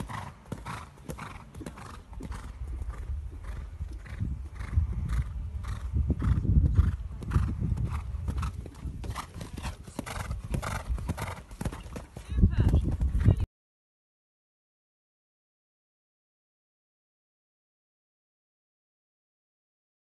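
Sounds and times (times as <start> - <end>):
horse hoofbeats on sand: 0.0 - 13.5.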